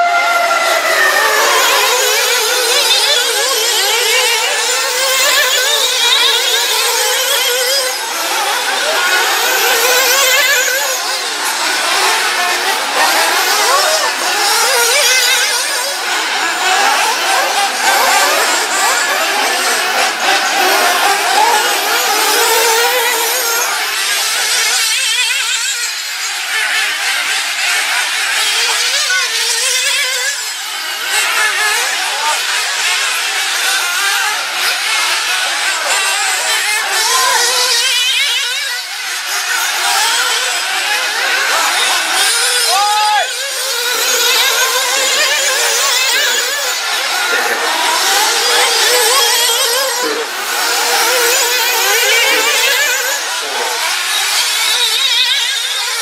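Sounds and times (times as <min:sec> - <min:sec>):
model car engines revving: 0:00.0 - 0:56.0.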